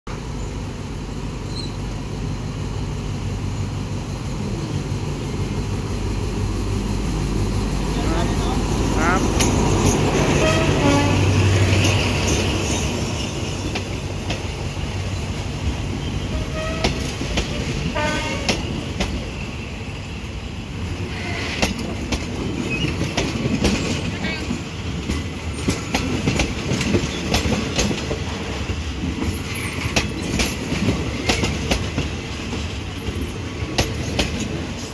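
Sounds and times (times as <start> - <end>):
diesel locomotive engine hum: 0.1 - 34.9
train coaches rumbling past: 0.1 - 34.9
metallic wheel squeals: 1.4 - 1.8
wheels clacking over rail joints: 7.8 - 19.4, 21.1 - 34.9.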